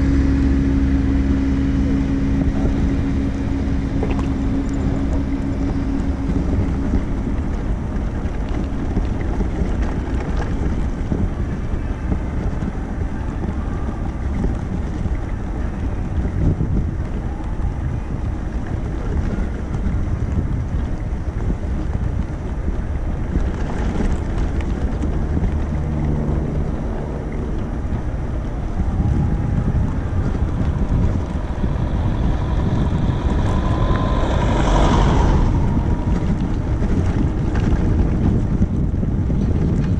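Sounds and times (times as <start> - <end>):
low rumble of handbike: 0.0 - 39.9
wind rushing over microphone: 0.0 - 39.9
faint tones: 25.5 - 38.3.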